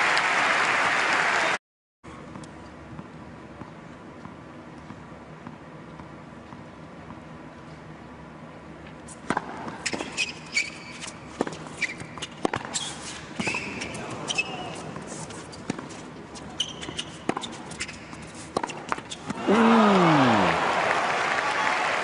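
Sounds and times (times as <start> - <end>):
tennis ball bouncing: 9.2 - 10.3, 11.4 - 12.8, 15.5 - 20.3
shoe squeaks on hard court: 9.8 - 19.3.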